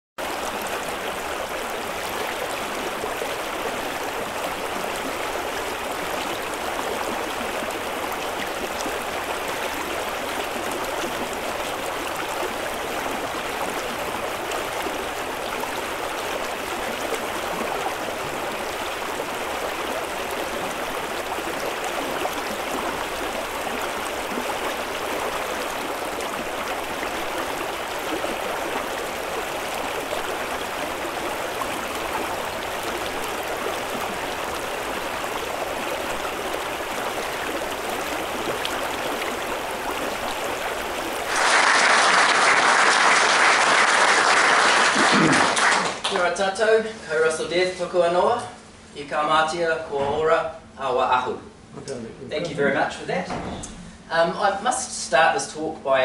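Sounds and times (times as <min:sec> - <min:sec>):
river flowing over stones: 0:00.2 - 0:44.3.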